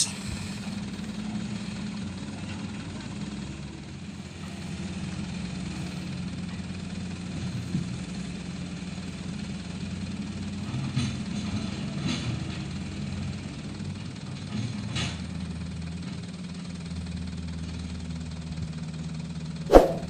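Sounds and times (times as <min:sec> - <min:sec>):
diesel engines humming: 0:00.0 - 0:14.6.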